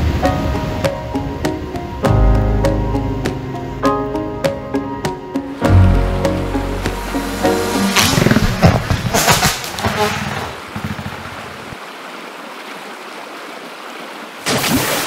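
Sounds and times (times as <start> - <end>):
music track: 0.0 - 8.8.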